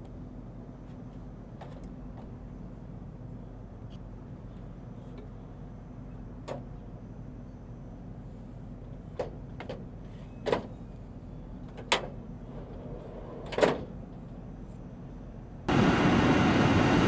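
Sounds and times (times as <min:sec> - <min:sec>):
loud steady noise: 0:15.7 - 0:17.0.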